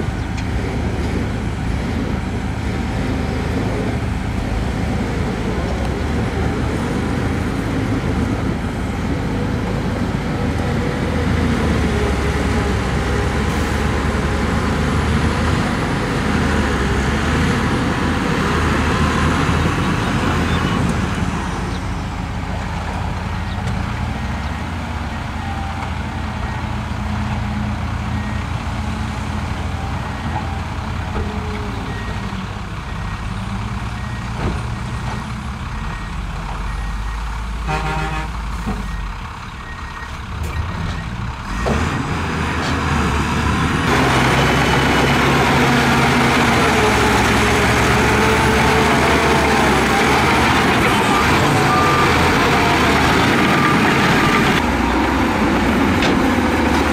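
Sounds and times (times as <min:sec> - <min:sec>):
heavy diesel machinery engine drone: 0:00.0 - 0:56.9.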